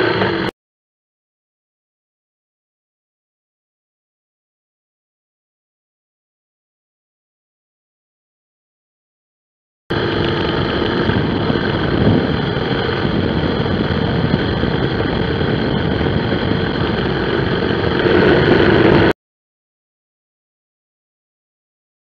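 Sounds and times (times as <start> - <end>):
motorcycle engine running: 0.0 - 0.5, 9.9 - 19.2
wind noise: 9.9 - 19.2.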